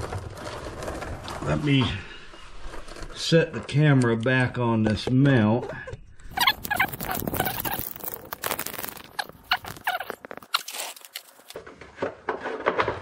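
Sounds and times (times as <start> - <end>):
brief squeaks: 5.6 - 11.6.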